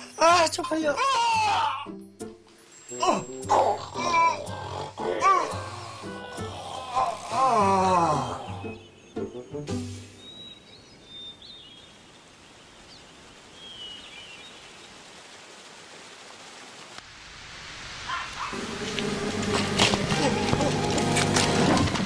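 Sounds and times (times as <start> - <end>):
faint steady hiss: 9.7 - 19.6.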